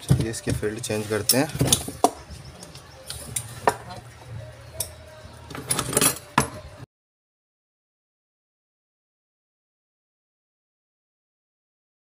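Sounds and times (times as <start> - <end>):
metal clinks of hand tools: 4.8 - 6.6.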